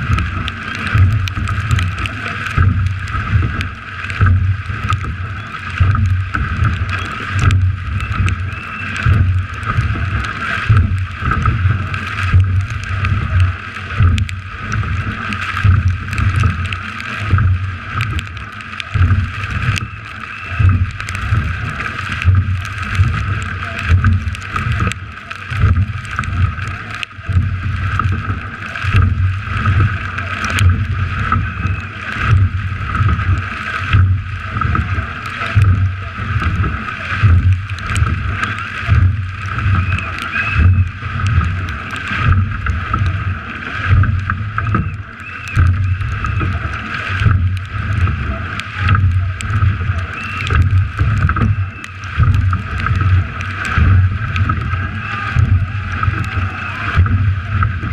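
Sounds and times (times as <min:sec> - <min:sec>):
water rushing along boat hull: 0:00.0 - 0:57.9.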